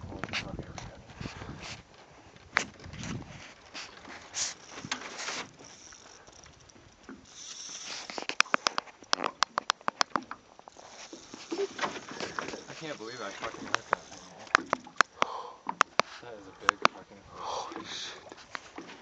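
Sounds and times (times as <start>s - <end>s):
fly reel ratchet clicking: 4.4s - 15.2s
water splashing: 6.9s - 19.0s.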